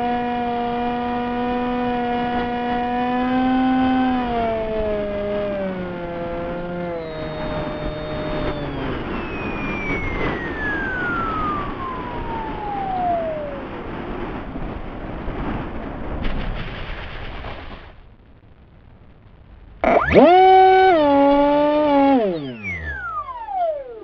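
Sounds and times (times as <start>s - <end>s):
electric motor whine: 0.0s - 14.3s, 19.8s - 24.0s
model plane bumping through grass: 0.8s - 13.7s, 19.8s - 24.0s
wind rush on microphone: 3.7s - 18.0s.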